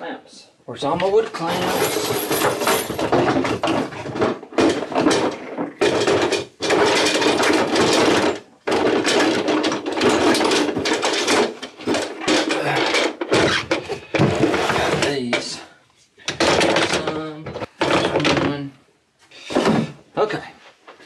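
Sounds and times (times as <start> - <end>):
tools clattering in plastic tub: 1.4 - 15.6, 16.2 - 18.6.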